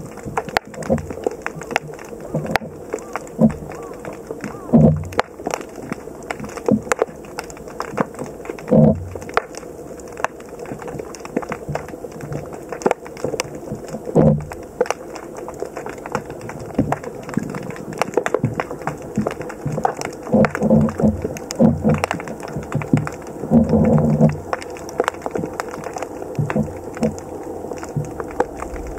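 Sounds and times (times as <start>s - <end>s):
rushing burst of water: 0.0s - 28.9s
underwater clicking and crackling: 0.0s - 28.9s.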